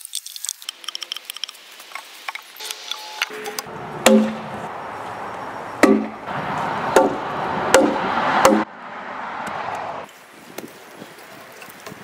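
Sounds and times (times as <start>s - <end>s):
mallet knocking wood: 4.0s - 4.5s, 5.8s - 6.2s, 6.9s - 8.7s.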